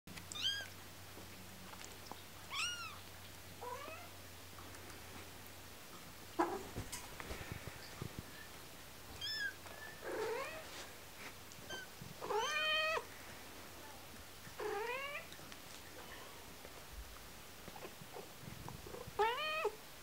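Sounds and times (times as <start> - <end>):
cat high squeaks: 9.2 - 9.6
cat meowing: 9.2 - 10.6, 11.7 - 13.0, 19.2 - 19.8.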